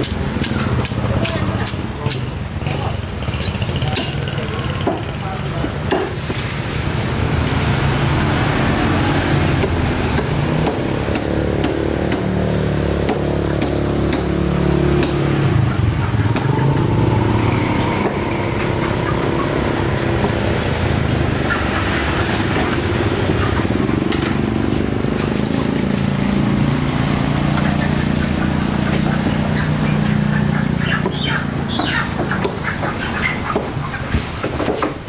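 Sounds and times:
motor engine running: 7.2 - 32.7
cleaver chopping on wooden block: 13.0 - 14.3.

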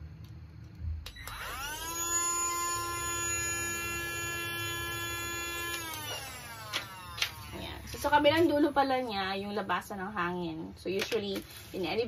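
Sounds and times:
vacuum cleaner motor whine: 1.1 - 9.1.

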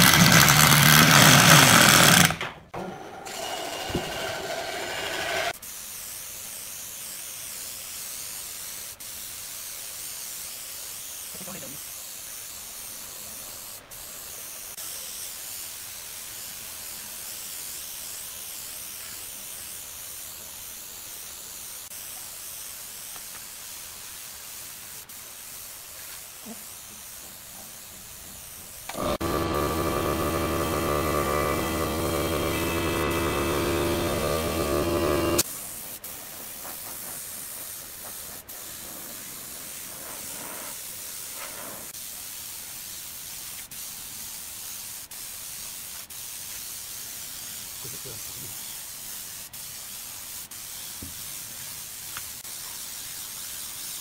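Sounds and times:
spray gun hissing: 5.4 - 54.0
loud multi-pitched hum: 28.9 - 35.4.

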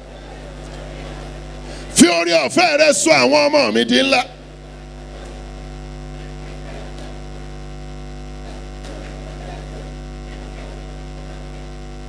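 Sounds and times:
congregation praying aloud: 0.0 - 5.4
electrical mains hum: 0.0 - 12.0.

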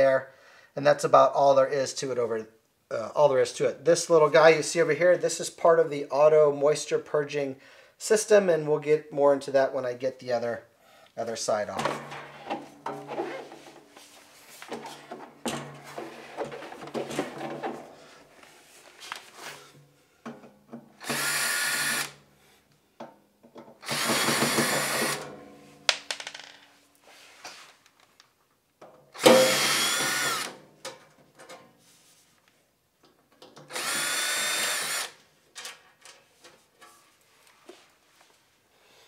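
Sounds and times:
cordless drill running: 21.0 - 22.2, 23.8 - 25.2, 29.2 - 30.6, 33.7 - 35.2.

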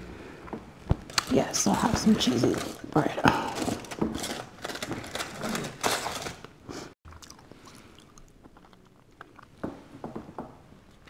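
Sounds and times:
person chewing: 7.1 - 9.6, 10.8 - 11.0.

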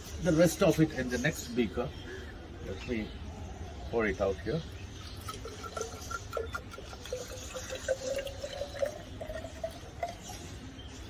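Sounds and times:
water pouring into glass beaker: 4.9 - 10.6.

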